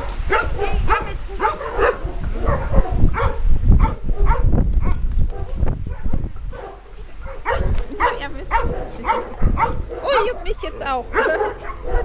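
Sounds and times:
dogs whining and yipping: 5.9 - 12.0.

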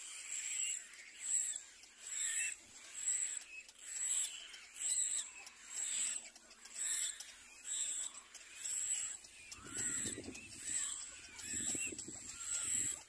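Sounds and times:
chicks high begging calls: 0.2 - 13.0
lower rough chick calls: 8.6 - 13.0.

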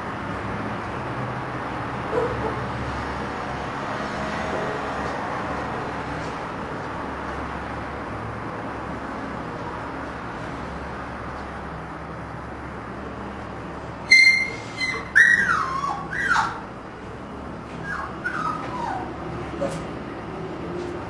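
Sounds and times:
puppy whimpering: 14.1 - 16.7, 17.8 - 19.8
puppy yelping and whining: 14.1 - 16.7, 17.8 - 19.8.

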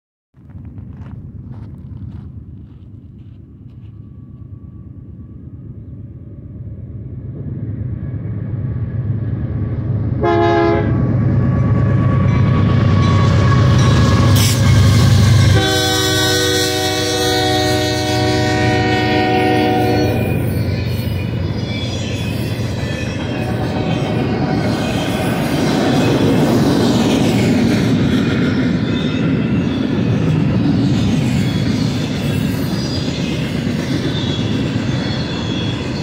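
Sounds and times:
diesel locomotive rumble: 0.4 - 36.0
train air horn blasts: 10.2 - 11.0, 15.4 - 20.5, 23.2 - 25.2.

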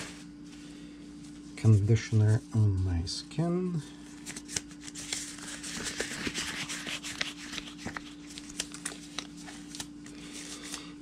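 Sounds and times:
steady low hum: 0.0 - 11.0
gloves rustling and snapping: 4.1 - 10.9.

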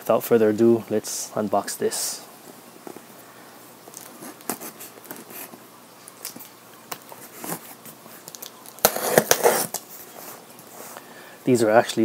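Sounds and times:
knife slitting packing tape: 8.3 - 9.9.

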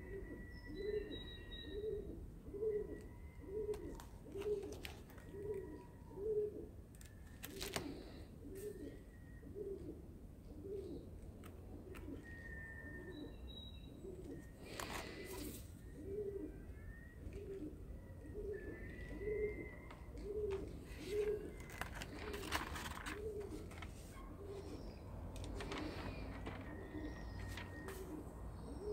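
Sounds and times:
pigeon cooing: 0.0 - 28.9
paper pages rustling: 3.7 - 5.6, 7.0 - 8.0, 14.7 - 15.7, 19.9 - 24.7, 25.3 - 28.1.

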